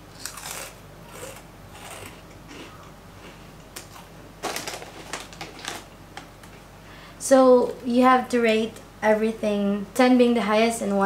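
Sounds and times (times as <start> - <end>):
person chewing crunchy snack: 0.1 - 4.6.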